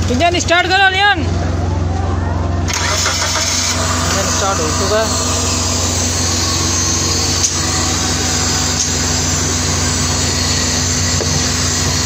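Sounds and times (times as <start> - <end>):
car engine idling: 2.4 - 12.0.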